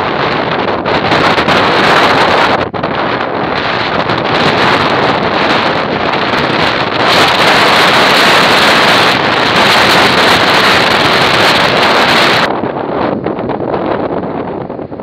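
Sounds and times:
wind blowing across microphone: 0.0s - 15.0s.

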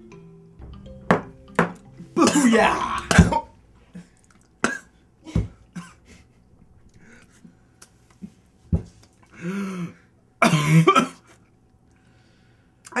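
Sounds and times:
man coughing: 2.2s - 3.6s, 4.6s - 6.2s, 10.4s - 11.3s
man groaning: 2.2s - 3.6s.

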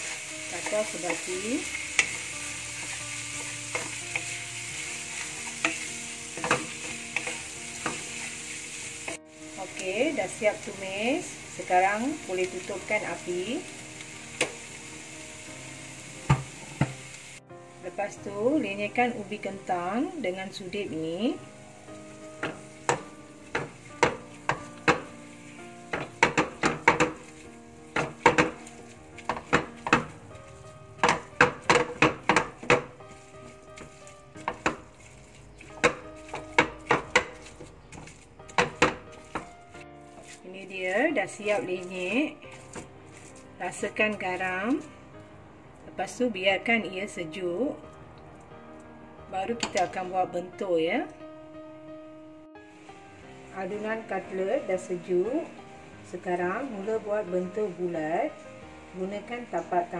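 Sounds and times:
spatula scraping pan: 0.0s - 14.7s, 22.4s - 45.0s
food sizzling in a wok: 0.0s - 45.3s, 52.6s - 59.9s
soft background music: 0.0s - 59.9s
metal masher knocking on wok: 25.9s - 27.2s, 28.0s - 30.2s, 31.0s - 32.9s, 35.8s - 39.5s.

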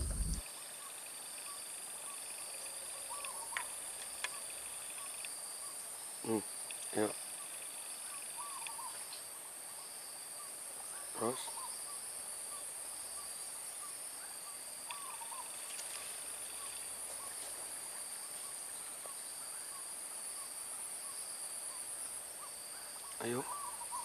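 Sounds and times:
short repeated animal calls: 0.0s - 5.2s, 6.2s - 9.2s, 14.8s - 17.4s, 22.4s - 24.0s
high-pitched insect drone: 0.0s - 10.6s.

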